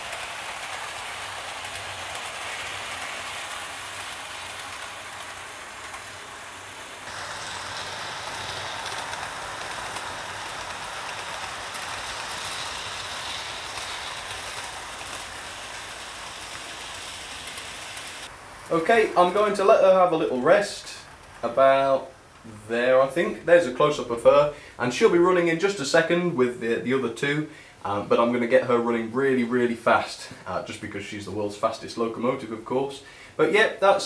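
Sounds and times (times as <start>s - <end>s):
model train running hiss: 0.0s - 22.1s.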